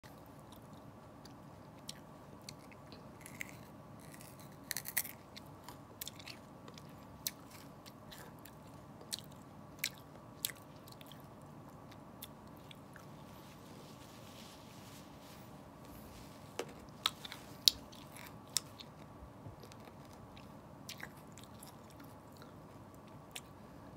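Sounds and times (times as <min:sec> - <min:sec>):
faint steady hum: 0:00.0 - 0:23.9
person biting and chewing vegetable: 0:00.5 - 0:13.1, 0:16.8 - 0:22.6.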